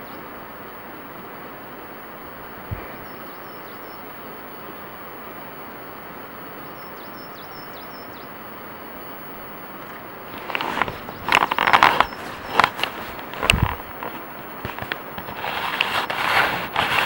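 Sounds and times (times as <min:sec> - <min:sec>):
small bird chirping: 0:02.5 - 0:05.0, 0:06.7 - 0:08.4, 0:09.0 - 0:15.2
rushing background noise: 0:08.3 - 0:17.0.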